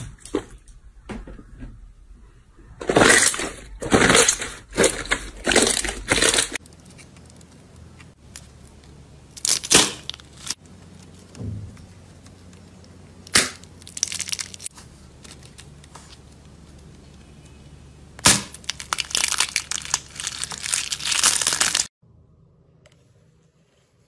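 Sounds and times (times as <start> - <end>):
shell crunching and crackling: 2.8 - 17.2, 18.2 - 21.9
shell cracking: 12.2 - 14.7.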